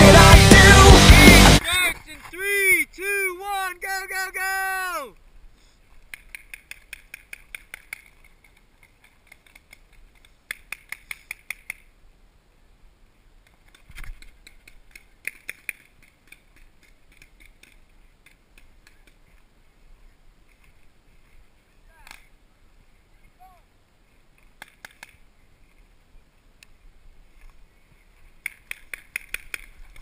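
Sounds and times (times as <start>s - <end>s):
paintball markers firing: 28.4s - 29.8s.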